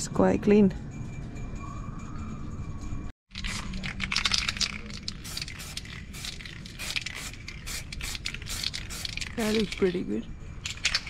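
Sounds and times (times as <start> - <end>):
spray-paint can hissing: 5.1 - 9.8.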